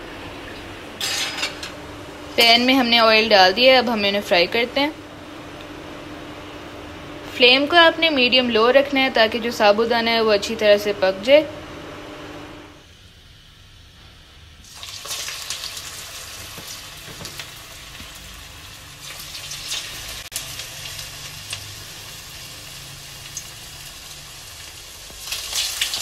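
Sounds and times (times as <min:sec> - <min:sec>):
hot oil sizzling and crackling: 0:14.4 - 0:26.0.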